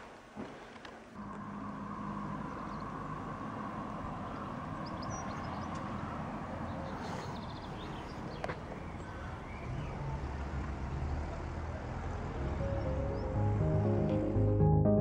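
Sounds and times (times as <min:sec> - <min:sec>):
vehicle engine humming: 0:01.0 - 0:14.7
bird chirps: 0:02.2 - 0:03.1, 0:04.2 - 0:10.0.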